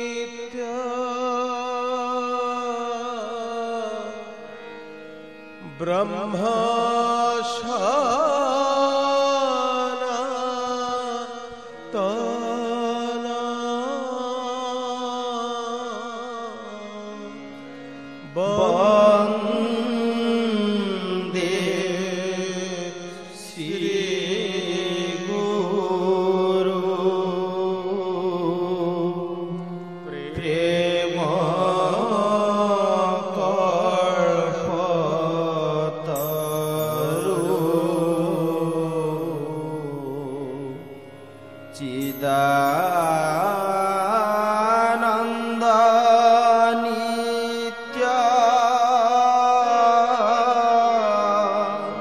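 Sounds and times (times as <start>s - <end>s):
person singing long wavering notes: 0.0s - 52.0s
instrumental accompaniment: 15.2s - 52.0s.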